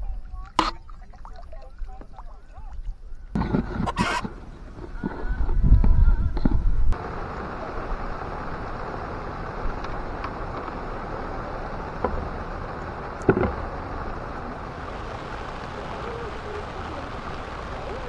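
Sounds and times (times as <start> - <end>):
handling rumble: 0.0 - 18.0
heavy rain on lake surface: 7.0 - 18.0.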